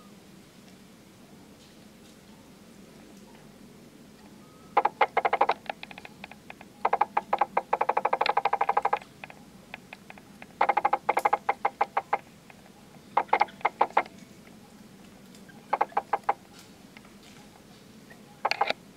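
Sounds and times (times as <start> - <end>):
baby monkey squeaking: 4.8 - 5.6, 6.8 - 9.0, 10.6 - 12.2, 13.1 - 14.1, 15.5 - 16.4.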